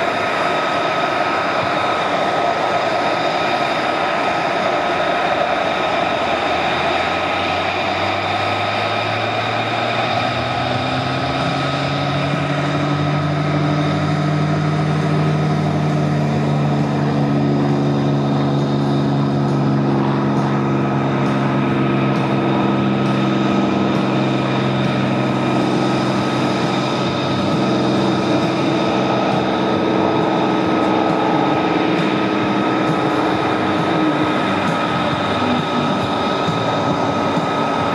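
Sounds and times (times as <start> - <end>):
propeller plane engine at takeoff: 0.0 - 37.9.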